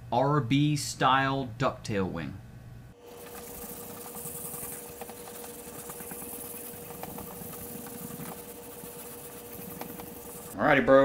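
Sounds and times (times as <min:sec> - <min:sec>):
faint hum: 0:02.3 - 0:10.7
sandpaper rubbing: 0:03.2 - 0:10.6.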